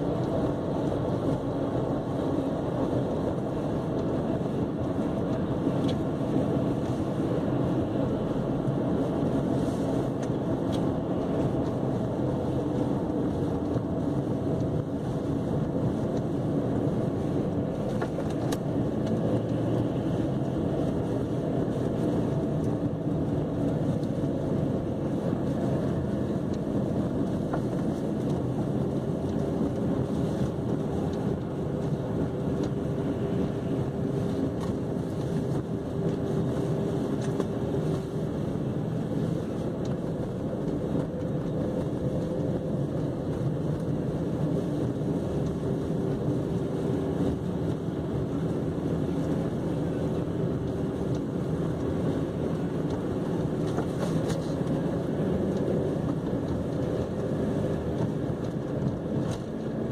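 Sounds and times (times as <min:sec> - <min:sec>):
engine and tyre rumble: 0:00.0 - 0:59.9
in-cabin road noise: 0:00.0 - 0:59.9.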